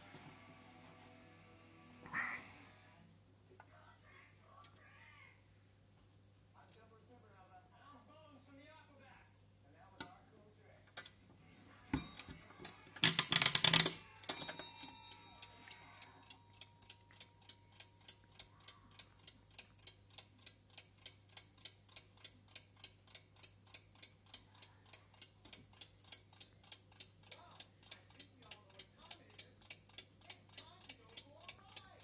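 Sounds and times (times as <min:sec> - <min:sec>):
timer levers clicking: 0:12.0 - 0:15.8
clockwork ticking: 0:12.0 - 0:32.0.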